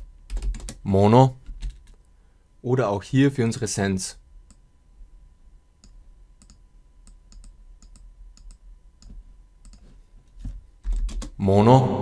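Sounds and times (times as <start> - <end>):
computer mouse clicking: 5.8 - 9.9.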